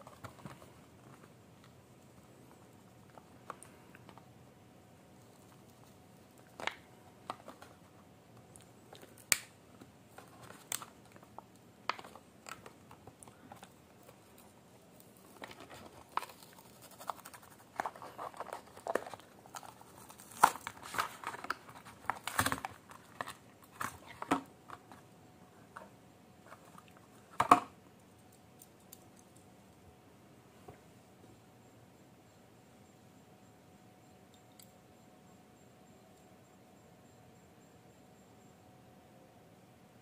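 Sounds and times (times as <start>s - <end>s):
packaging clicks and crinkles: 6.3s - 25.0s.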